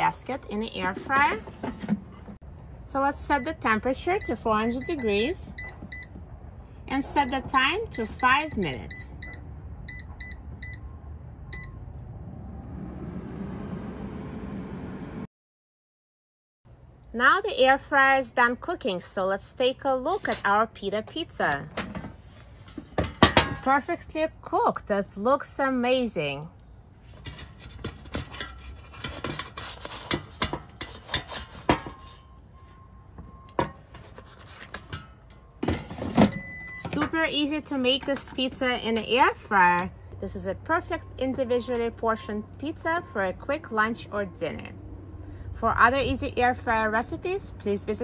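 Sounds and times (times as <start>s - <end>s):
spatula scraping air fryer basket: 0.3s - 2.2s, 27.0s - 32.4s, 33.8s - 36.2s.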